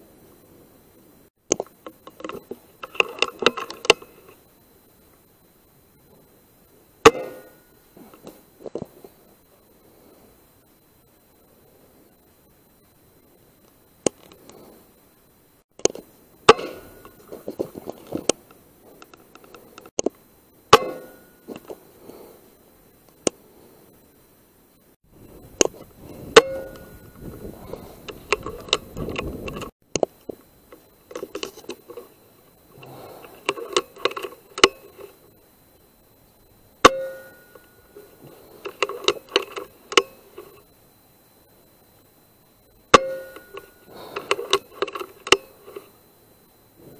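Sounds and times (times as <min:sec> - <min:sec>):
clicking and rustling: 0:01.5 - 0:04.4, 0:25.4 - 0:35.2, 0:37.5 - 0:40.7, 0:43.2 - 0:45.9
metallic ring: 0:07.0 - 0:08.1, 0:20.7 - 0:21.7, 0:26.1 - 0:29.7, 0:36.8 - 0:40.6, 0:42.9 - 0:46.0.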